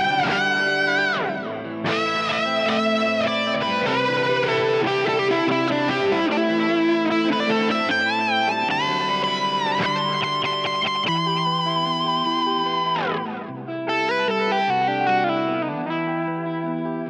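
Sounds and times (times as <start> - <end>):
electric guitar solo: 0.0 - 17.0.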